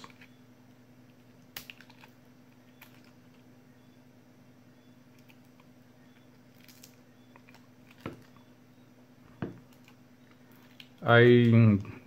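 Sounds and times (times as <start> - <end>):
low steady hum: 0.0 - 12.0
light clicks and crinkles: 5.1 - 8.5, 9.6 - 11.9.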